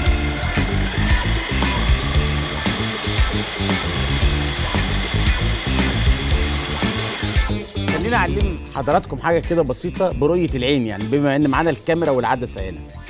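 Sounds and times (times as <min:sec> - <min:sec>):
food processor motor running: 0:00.0 - 0:07.7
background music: 0:00.0 - 0:13.0.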